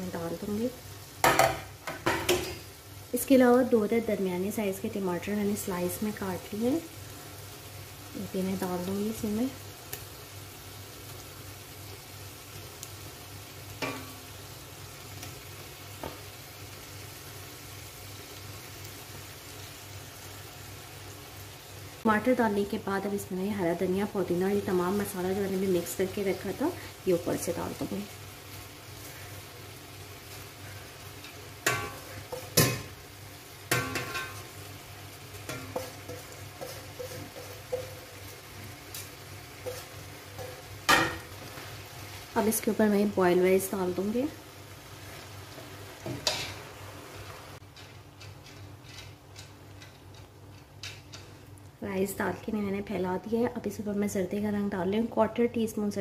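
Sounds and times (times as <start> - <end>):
metal utensils clinking on a pot: 31.2 - 32.9, 33.7 - 34.5.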